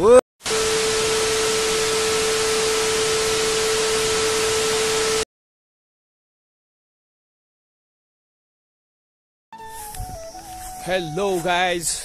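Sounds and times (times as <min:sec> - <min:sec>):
static white noise hiss: 0:00.5 - 0:05.2
steady mid-pitched tone: 0:00.5 - 0:05.2.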